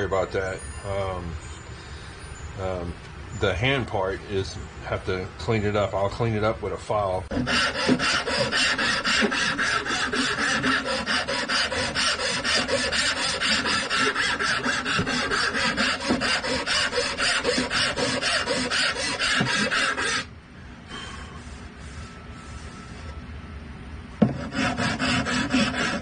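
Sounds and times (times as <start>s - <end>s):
hand file rasping on wood: 7.3s - 20.3s, 24.2s - 26.0s.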